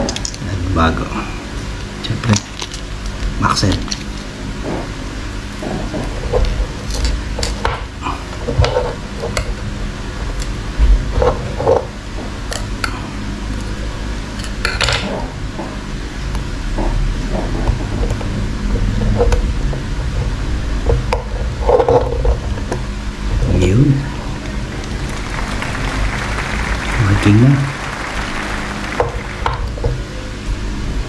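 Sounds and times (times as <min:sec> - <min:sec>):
low background hum: 0:17.3 - 0:30.0.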